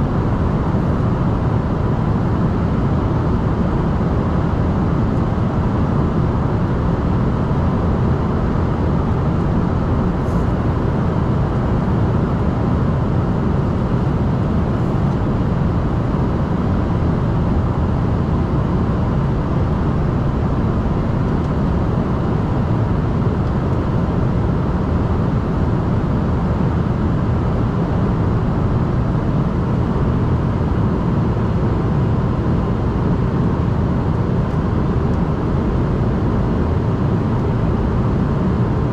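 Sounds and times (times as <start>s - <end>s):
airliner cabin engine roar: 0.0s - 38.9s.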